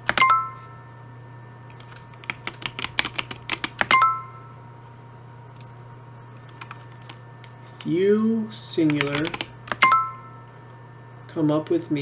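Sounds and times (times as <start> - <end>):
keyboard typing: 0.0 - 0.6, 1.8 - 4.2, 6.4 - 7.2, 8.8 - 10.2.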